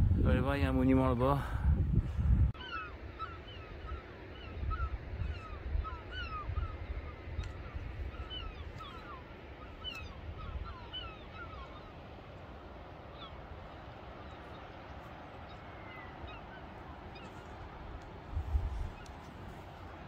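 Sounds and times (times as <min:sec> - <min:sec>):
wind rumble on microphone: 0:00.0 - 0:02.6, 0:17.1 - 0:20.0
birds calling: 0:02.5 - 0:20.0.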